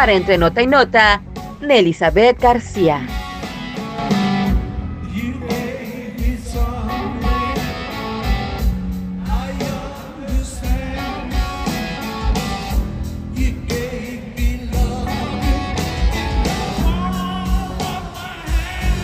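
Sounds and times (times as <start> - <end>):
rock band playing: 0.0 - 19.0
male lead vocal: 5.0 - 19.0.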